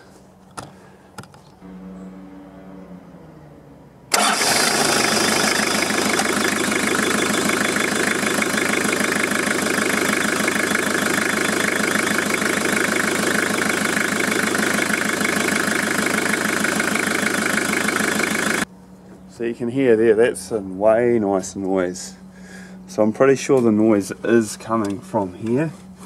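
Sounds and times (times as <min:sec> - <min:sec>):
diesel engine idling: 0:04.1 - 0:18.7.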